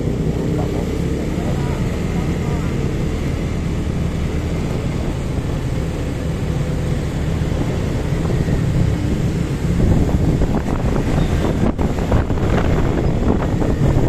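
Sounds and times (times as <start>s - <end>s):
motorcycle engine running: 0.0s - 14.0s
road noise: 0.0s - 14.0s
wind rushing: 3.4s - 14.0s.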